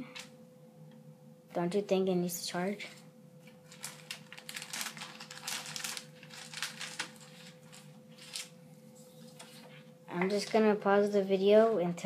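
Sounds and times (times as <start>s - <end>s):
plastic packaging crinkling: 3.4s - 8.6s.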